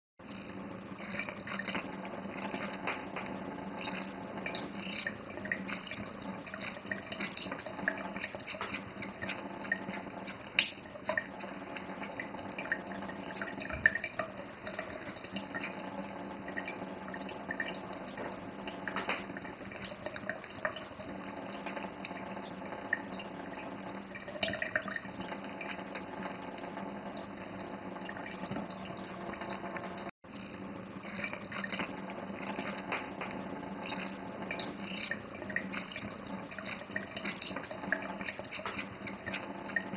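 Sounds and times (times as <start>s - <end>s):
tap water trickling: 0.3s - 39.9s
cat drinking with small splashes: 0.9s - 39.9s.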